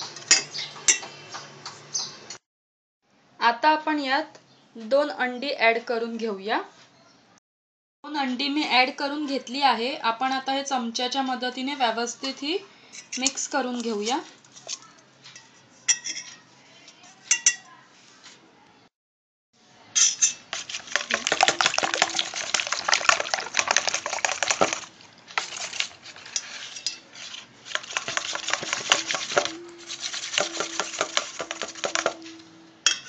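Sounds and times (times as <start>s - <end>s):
spoon beating in a steel bowl: 20.0s - 24.9s, 27.7s - 33.0s.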